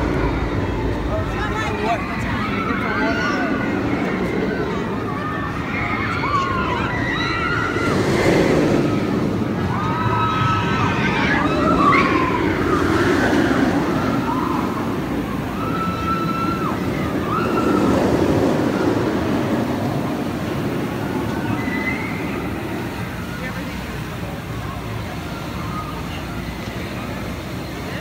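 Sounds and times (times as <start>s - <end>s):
roller coaster rumbling on track: 0.0s - 28.0s
riders screaming: 5.2s - 20.0s.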